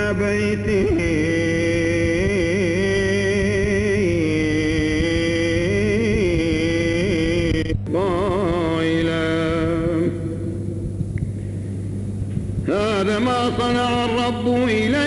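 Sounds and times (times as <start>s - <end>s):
man chanting: 0.0s - 10.8s, 12.6s - 15.0s.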